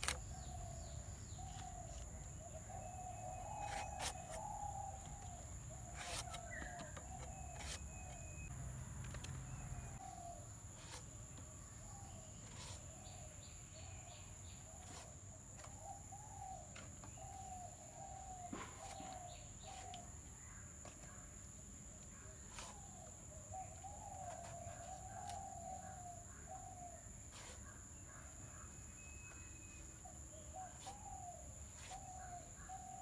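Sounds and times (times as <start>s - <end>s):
sharp clicks of melon cutting: 0.0s - 0.5s
bird calling short curved notes: 0.0s - 8.5s.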